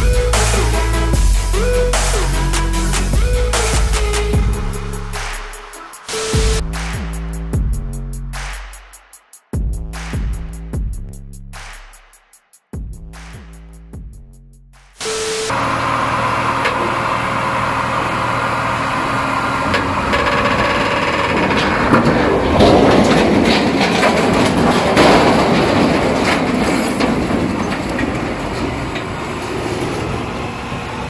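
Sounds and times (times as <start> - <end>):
crane engine running: 0.0 - 6.9, 15.0 - 31.0
static glitch: 15.0 - 15.6
crashing and grinding: 19.7 - 29.1.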